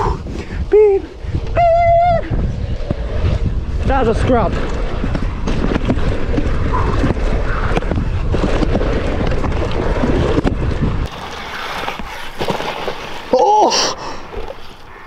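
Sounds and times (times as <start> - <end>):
wind buffeting microphone: 0.0 - 11.2
tyres skidding through loose dirt: 2.3 - 14.9
bike clattering down dirt track: 2.4 - 13.4.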